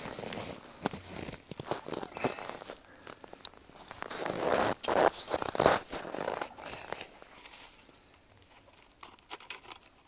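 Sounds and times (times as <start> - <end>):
jacket rustling: 0.0 - 2.8, 3.6 - 7.9
snow crunching and scraping: 0.0 - 8.1.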